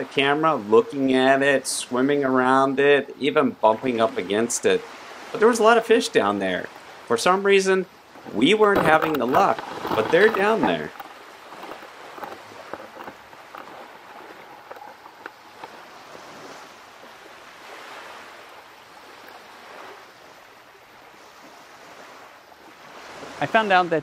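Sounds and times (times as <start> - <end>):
ocean waves washing: 0.0 - 24.0
faint clicks: 8.6 - 16.0.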